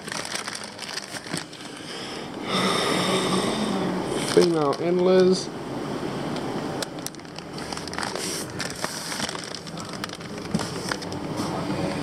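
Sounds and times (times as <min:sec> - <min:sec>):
plastic bags rustling: 0:00.0 - 0:01.9, 0:04.2 - 0:05.0, 0:06.8 - 0:11.6.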